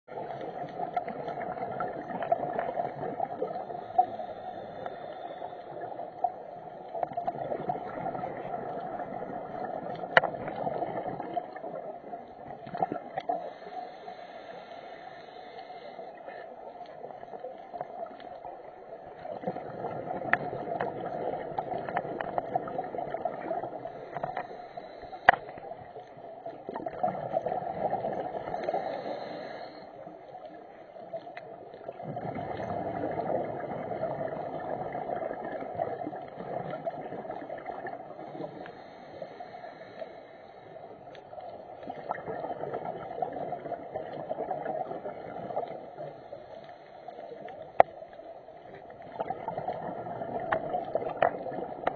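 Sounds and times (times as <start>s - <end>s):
exhaled bubbles: 0.0s - 13.6s, 17.0s - 24.6s, 25.3s - 29.6s, 31.4s - 38.8s, 40.9s - 46.4s, 47.6s - 51.9s
scuba regulator breathing: 3.4s - 6.9s, 13.2s - 17.0s, 20.4s - 26.0s, 27.7s - 30.5s, 37.4s - 43.2s, 45.8s - 47.9s.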